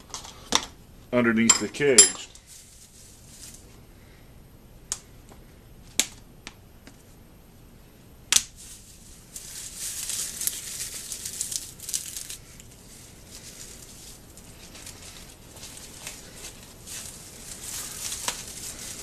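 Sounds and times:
dry straw crackling: 0:02.4 - 0:03.8, 0:08.4 - 0:19.0.

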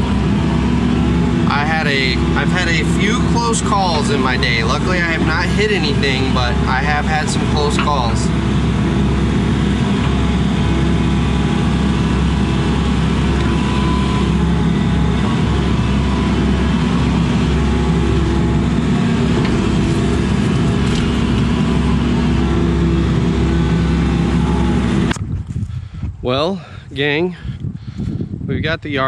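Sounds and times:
excavator diesel engine running: 0:00.0 - 0:25.2.

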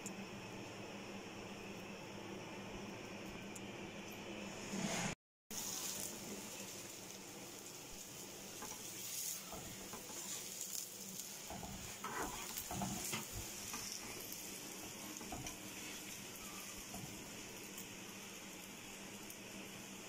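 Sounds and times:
bread sizzling in a pan: 0:00.2 - 0:20.0
metal spatula scraping pan: 0:12.0 - 0:13.3.

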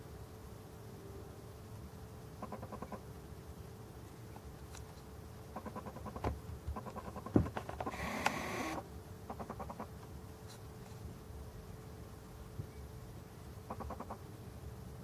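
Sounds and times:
faint steady hum: 0:00.0 - 0:15.0
camcorder zoom motor whirring: 0:07.9 - 0:08.8.

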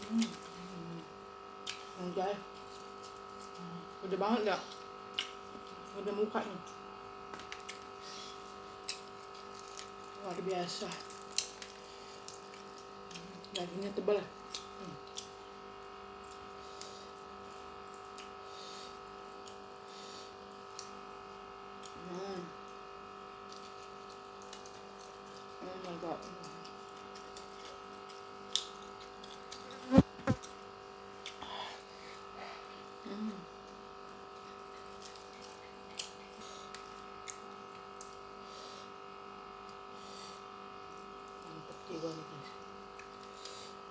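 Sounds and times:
steady background hum: 0:00.0 - 0:43.9
eating clicks and smacks: 0:04.7 - 0:05.8, 0:10.8 - 0:13.8, 0:14.4 - 0:15.4, 0:26.2 - 0:29.8, 0:34.7 - 0:38.2
fingers tearing wet food: 0:10.9 - 0:13.6.

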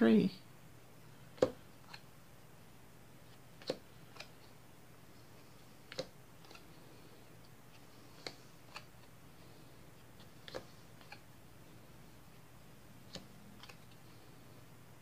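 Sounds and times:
playing cards snapping on wood: 0:01.4 - 0:02.0, 0:03.6 - 0:04.3.

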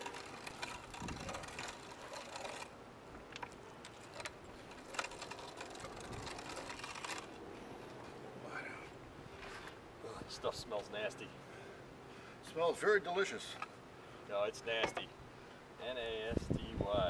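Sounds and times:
meat grinder rasping grind: 0:00.0 - 0:02.6.

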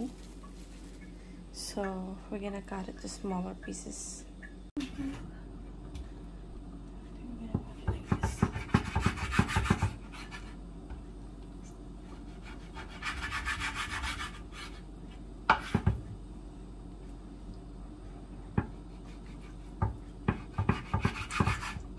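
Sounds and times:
knife slicing meat on cutting board: 0:20.3 - 0:21.8.

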